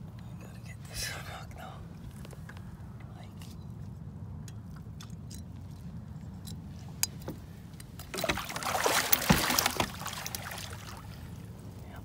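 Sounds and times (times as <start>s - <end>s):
fish splashing in a net: 8.1s - 11.3s.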